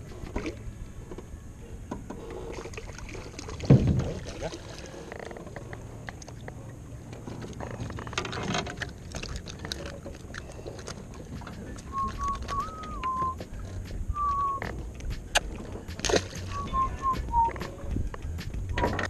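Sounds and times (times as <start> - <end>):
waves slapping boat hull: 2.4 - 19.0
thump: 3.7 - 4.2.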